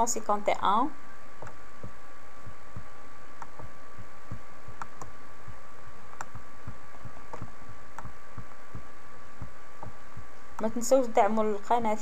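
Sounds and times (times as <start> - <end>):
electrical hum: 0.0 - 12.0
soft low thumps: 1.0 - 12.0
computer mouse clicks: 1.4 - 1.9, 4.3 - 5.2, 6.1 - 8.8.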